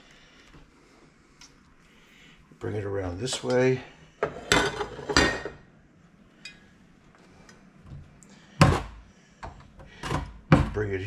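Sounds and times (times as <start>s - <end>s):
kitchen items knocking and clattering: 4.2s - 5.6s, 8.6s - 10.9s.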